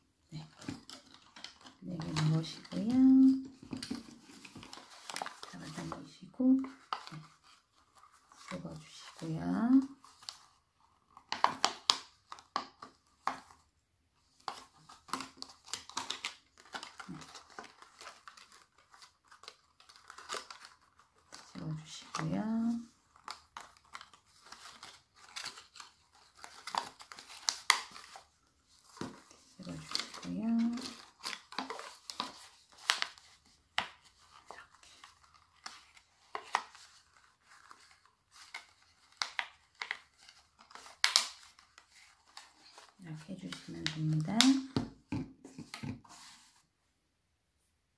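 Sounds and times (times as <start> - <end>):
plastic cup crinkling: 14.4 - 46.3.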